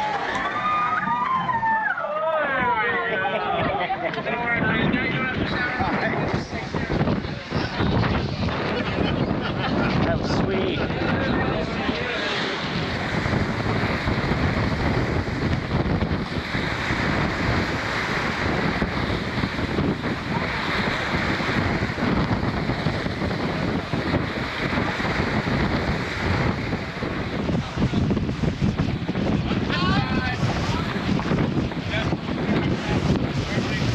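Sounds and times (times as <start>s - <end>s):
sea washing: 0.0s - 33.9s
wind rushing over microphone: 0.0s - 33.9s.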